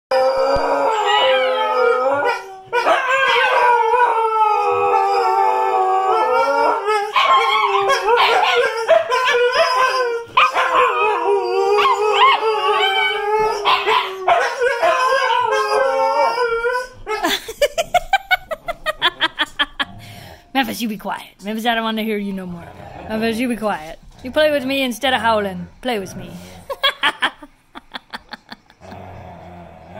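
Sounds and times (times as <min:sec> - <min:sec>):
dogs howling: 0:00.1 - 0:19.9
dog yipping: 0:07.1 - 0:11.2, 0:11.8 - 0:15.8.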